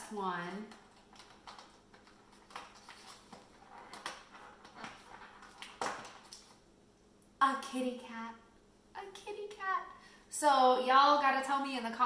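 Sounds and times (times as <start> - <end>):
plastic packaging crinkling: 0.6 - 6.6.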